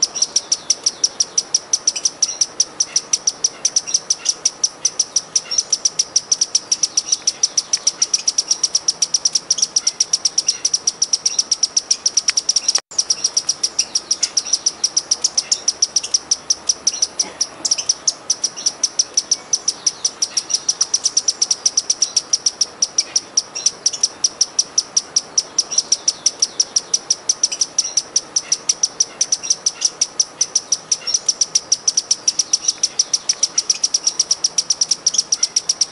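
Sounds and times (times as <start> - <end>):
hummingbird high chips: 0.0 - 35.9.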